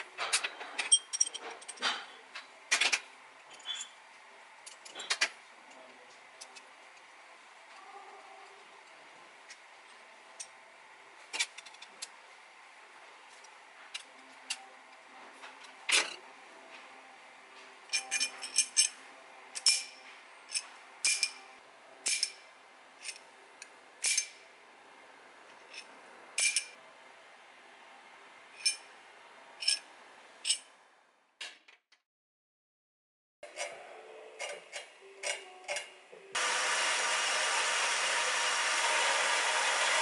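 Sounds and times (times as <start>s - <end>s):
metal tool parts clinking: 0.3s - 2.1s, 17.9s - 19.0s, 19.6s - 21.4s, 22.0s - 22.4s, 24.0s - 24.4s, 25.7s - 26.7s, 28.6s - 28.9s, 29.6s - 30.7s.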